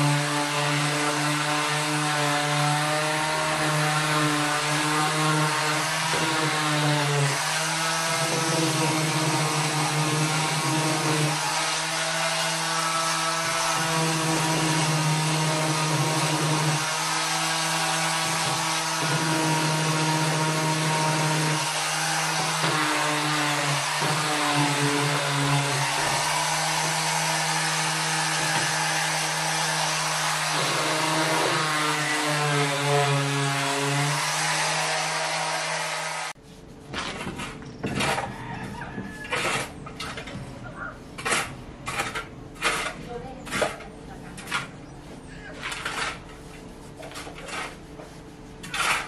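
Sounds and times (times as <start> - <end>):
orbital sander on wood: 0.0 - 36.4.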